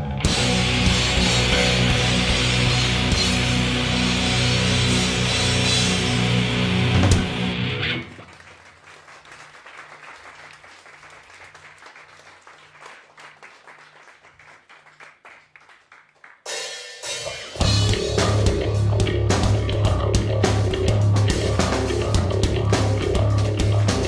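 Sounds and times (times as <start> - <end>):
industrial metal band playing: 0.0 - 8.2, 16.8 - 24.0.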